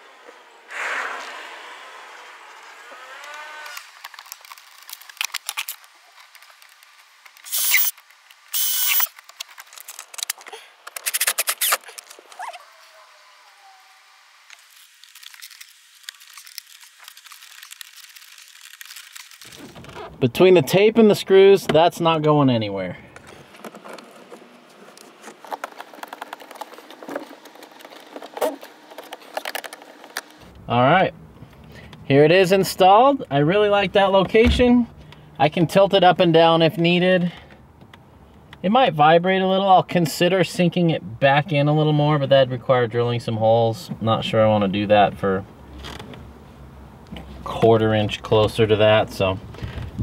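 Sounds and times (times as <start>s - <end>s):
quick clicks: 3.2s - 12.5s
screwdriver working at mount: 7.4s - 12.5s
cordless drill running: 7.5s - 7.9s, 8.5s - 9.1s.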